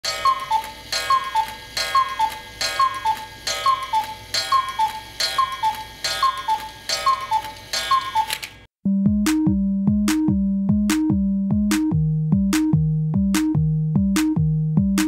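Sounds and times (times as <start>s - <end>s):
cuckoo clock calling: 0.0s - 8.7s
cuckoo clock click: 0.0s - 8.7s.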